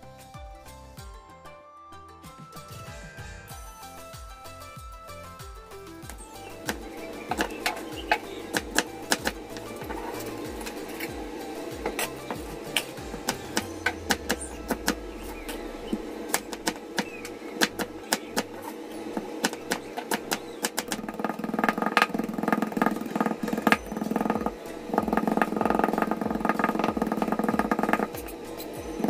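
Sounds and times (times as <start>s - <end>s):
knife chopping on cutting board: 6.7s - 10.8s, 16.3s - 28.4s.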